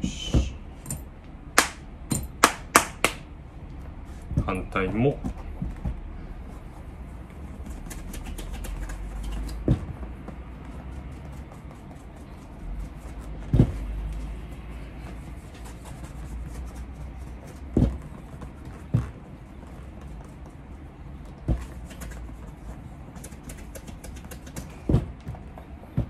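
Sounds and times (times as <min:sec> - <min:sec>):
shoe being buffed: 0:00.0 - 0:00.7, 0:05.9 - 0:26.0.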